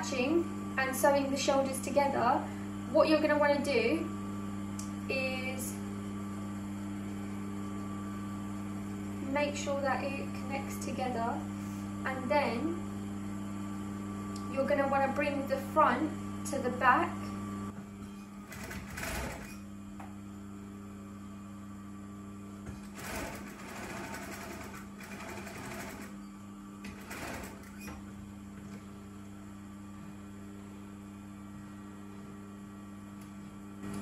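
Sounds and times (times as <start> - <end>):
steady electric hum: 0.0 - 34.0
sewing machine stitching: 18.5 - 19.6, 22.8 - 26.2, 26.8 - 28.0.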